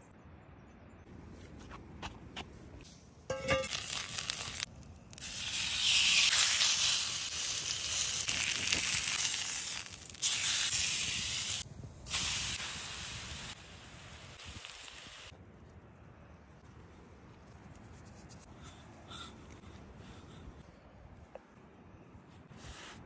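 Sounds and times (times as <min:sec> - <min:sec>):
meat sizzling in a grill pan: 0:05.2 - 0:13.5.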